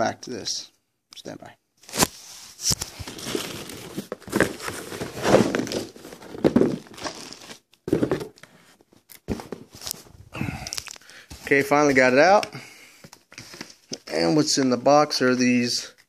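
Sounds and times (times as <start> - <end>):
plastic wrapping crinkling: 1.8 - 8.4, 9.5 - 12.4
cardboard box rustling: 2.7 - 8.4.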